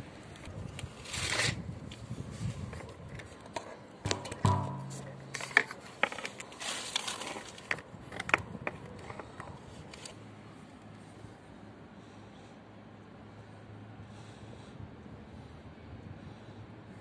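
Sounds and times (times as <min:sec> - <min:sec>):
rustling scrape of cables: 0:00.7 - 0:02.9, 0:05.7 - 0:07.8.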